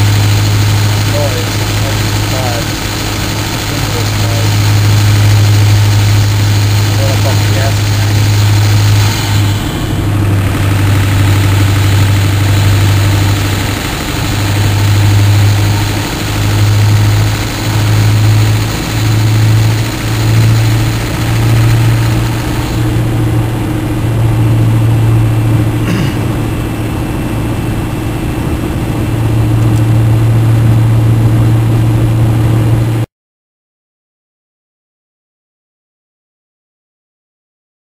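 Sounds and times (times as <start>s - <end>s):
boost leak hiss: 0.0s - 23.4s
diesel engine under throttle: 0.0s - 33.1s.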